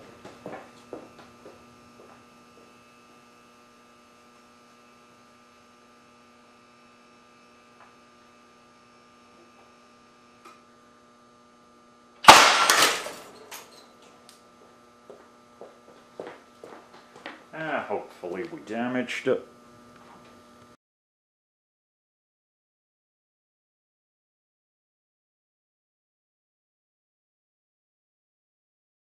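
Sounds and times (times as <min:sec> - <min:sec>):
electrical hum: 0:00.0 - 0:20.8
air cannon blast: 0:12.2 - 0:13.1.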